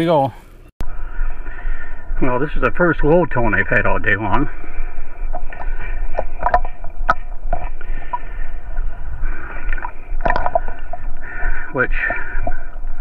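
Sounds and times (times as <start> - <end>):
water sloshing: 2.8 - 13.0
sharp clicks and knocks: 5.3 - 8.9, 9.6 - 12.9.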